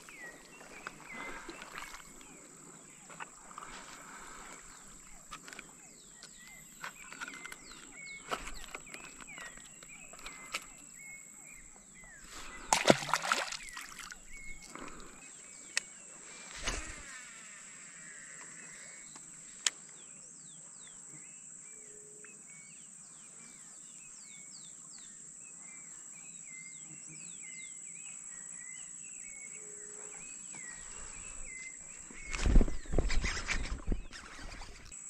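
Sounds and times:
birds chirping and whistling: 0:03.6 - 0:15.9, 0:28.6 - 0:34.9.

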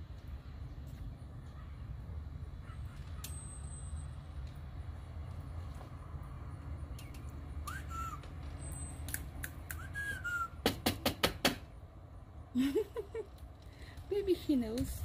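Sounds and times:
person whistling: 0:07.7 - 0:08.2, 0:09.7 - 0:10.6
sharp clicks: 0:09.0 - 0:09.9.

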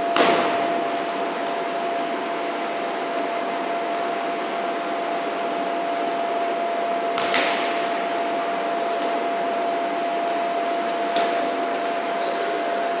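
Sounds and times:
rubber ball smacking concrete: 0:07.2 - 0:07.8.

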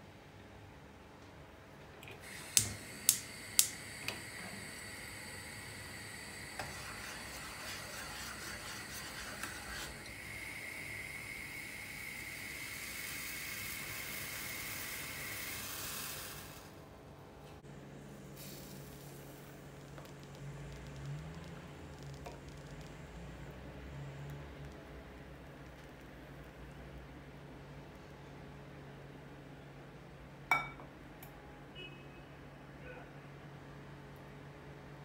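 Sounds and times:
gas burner hissing: 0:02.2 - 0:16.8, 0:18.3 - 0:20.0
gas stove igniter clicking: 0:02.3 - 0:04.9.

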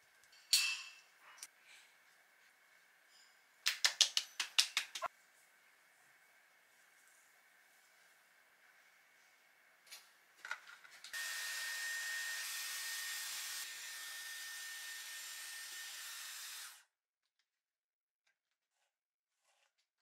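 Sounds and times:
hair dryer blowing: 0:11.1 - 0:16.8.

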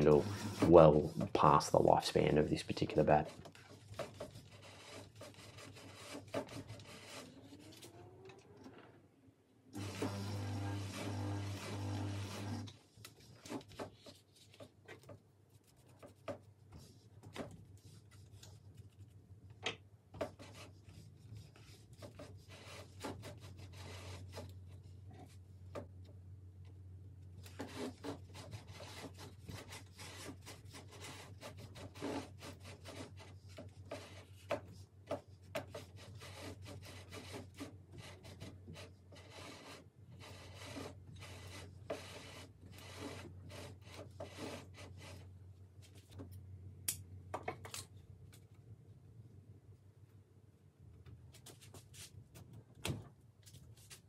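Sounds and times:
twine rubbing on handle: 0:02.7 - 0:08.0, 0:35.5 - 0:45.3.

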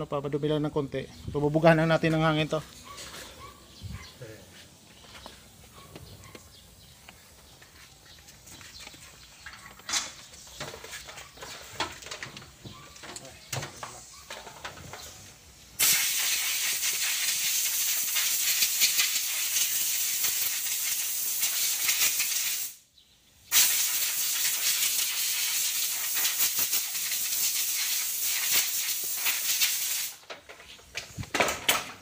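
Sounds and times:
compressed air hissing: 0:15.0 - 0:22.8, 0:23.5 - 0:30.2.

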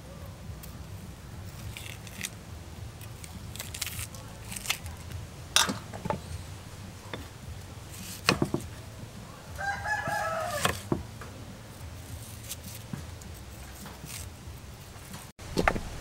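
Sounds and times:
knife chopping on wooden board: 0:08.0 - 0:08.7
rooster crowing: 0:09.3 - 0:10.9.

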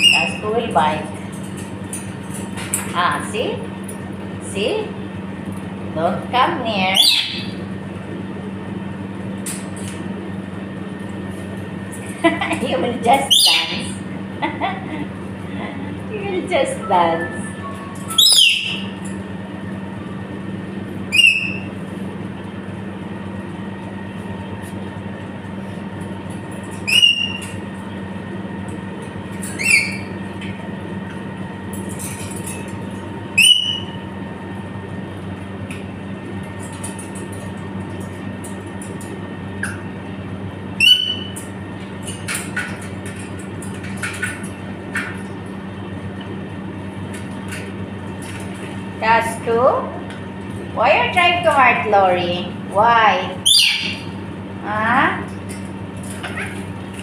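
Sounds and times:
parrots whistling calls: 0:00.0 - 0:00.5, 0:06.8 - 0:07.6, 0:13.2 - 0:14.0, 0:17.2 - 0:19.0, 0:21.1 - 0:21.8, 0:26.7 - 0:27.6, 0:29.4 - 0:30.2, 0:33.3 - 0:34.0, 0:40.8 - 0:41.4, 0:53.4 - 0:54.2
steady low hum: 0:00.0 - 0:57.0.

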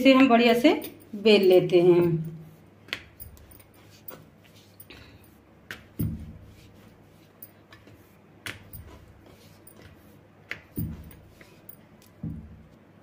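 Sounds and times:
rolling pin knocking on board: 0:05.7 - 0:06.4, 0:10.5 - 0:11.3.

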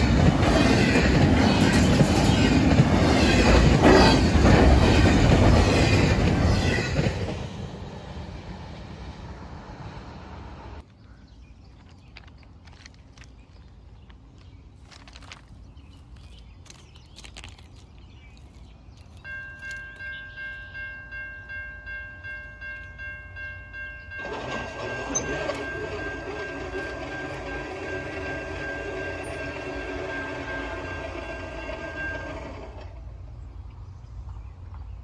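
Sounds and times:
railroad crossing bell ringing: 0:19.2 - 0:33.0
locomotive air horn: 0:24.2 - 0:33.1.

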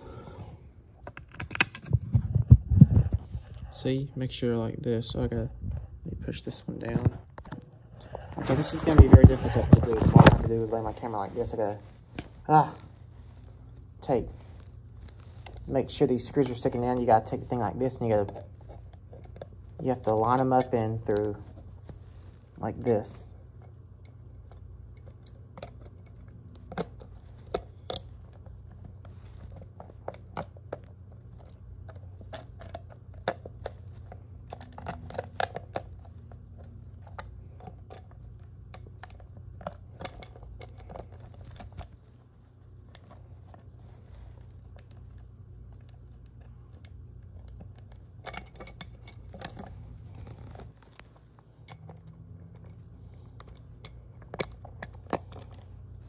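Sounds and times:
steady low hum: 0:00.0 - 0:56.0
small metal clicks and clinks: 0:16.4 - 0:21.4, 0:22.5 - 0:42.0, 0:44.7 - 0:55.7.

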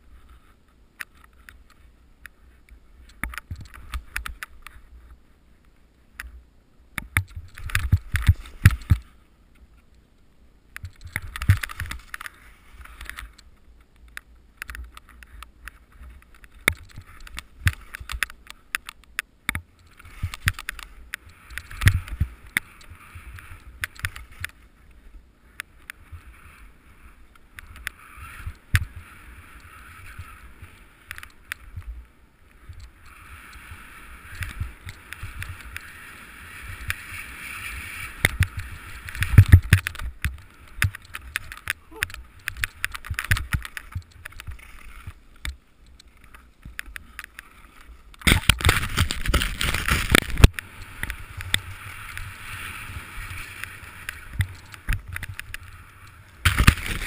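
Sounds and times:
wind rumbling on microphone: 0:07.0 - 0:09.8, 0:19.6 - 0:57.0
skis scraping through snow: 0:07.4 - 0:09.2, 0:11.4 - 0:13.3, 0:19.8 - 0:57.0.

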